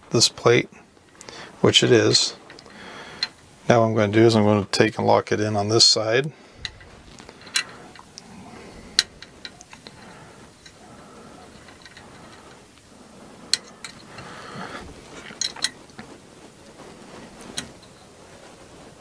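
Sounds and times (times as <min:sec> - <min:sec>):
metal parts and tools clicking: 0:06.6 - 0:08.1, 0:11.5 - 0:12.5, 0:15.2 - 0:15.8.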